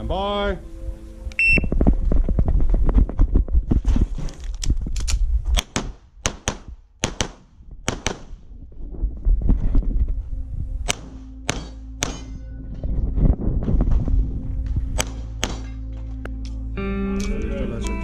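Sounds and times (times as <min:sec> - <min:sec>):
handgun shots: 0:05.6 - 0:08.3, 0:10.8 - 0:12.4, 0:15.0 - 0:15.8.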